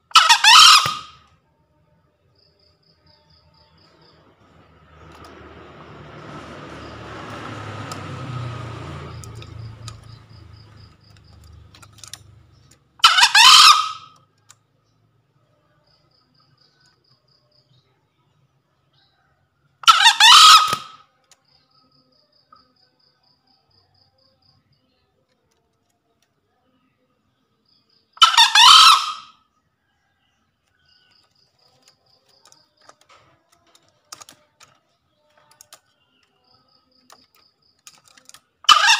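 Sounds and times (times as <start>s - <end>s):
rooster crowing: 13.0s - 14.1s, 19.0s - 21.0s, 28.2s - 31.0s, 38.6s - 38.9s.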